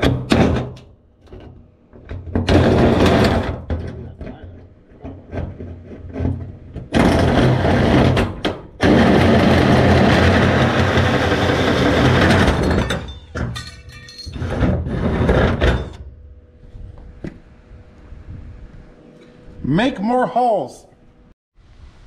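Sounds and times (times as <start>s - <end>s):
rattling clatter: 0.0s - 16.4s
power drill cutting sheet metal: 8.8s - 12.6s.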